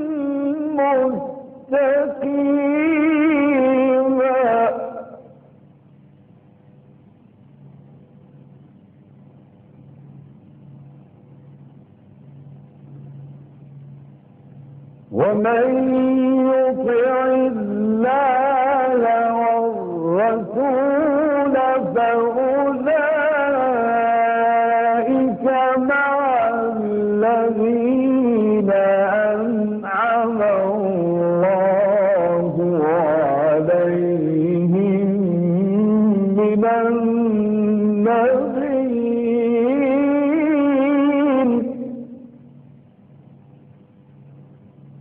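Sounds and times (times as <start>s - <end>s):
person chanting: 0.0s - 5.4s, 15.1s - 42.4s
tape hiss and hum: 0.0s - 45.0s
faint low murmur: 4.7s - 15.6s.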